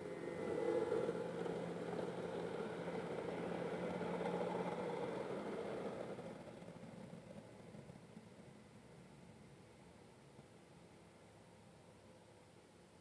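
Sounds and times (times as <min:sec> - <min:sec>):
freight train running past: 0:00.0 - 0:09.2.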